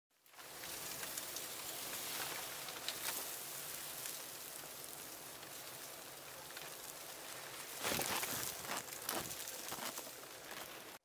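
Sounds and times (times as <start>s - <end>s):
hiss of heavy snow falling: 0.2s - 11.0s.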